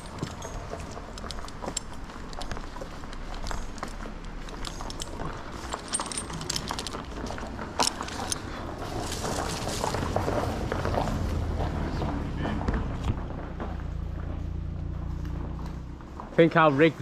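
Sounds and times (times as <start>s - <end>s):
metal climbing gear clinking: 0.0s - 10.3s.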